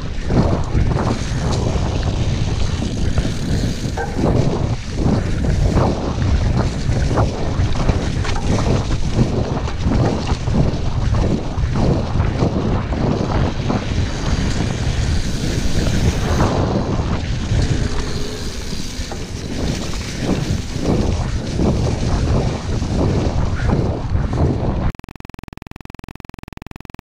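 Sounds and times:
bike rattling over rough ground: 0:00.0 - 0:24.7
wind buffeting microphone: 0:00.0 - 0:24.9.

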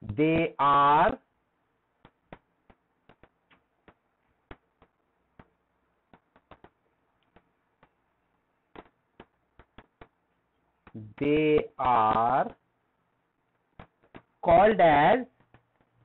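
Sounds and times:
stylus tapping on pen tablet: 0:02.0 - 0:11.0, 0:13.6 - 0:14.4, 0:15.4 - 0:16.0.

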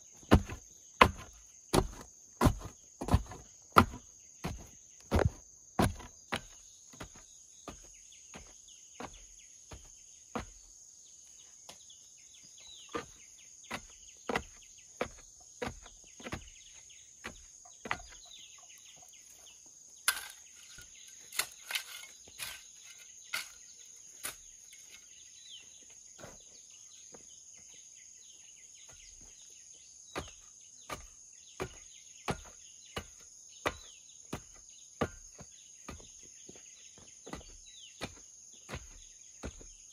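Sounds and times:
wooden pole tamping soil: 0:00.0 - 0:27.7, 0:28.6 - 0:39.9
machete striking wood: 0:00.3 - 0:06.5, 0:20.1 - 0:23.6.

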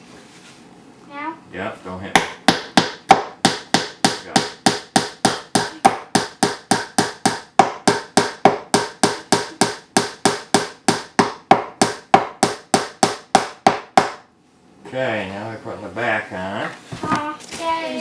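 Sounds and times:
hammer tapping nail into wood: 0:02.2 - 0:14.2.

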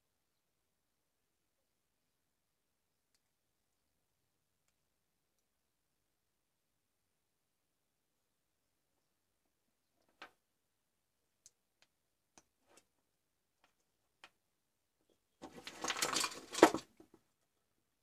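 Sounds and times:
scraping and clatter: 0:15.4 - 0:16.9.

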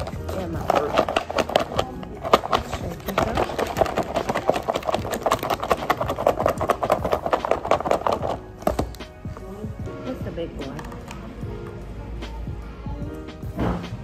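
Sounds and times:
salad rattling in plastic container: 0:00.0 - 0:08.8.

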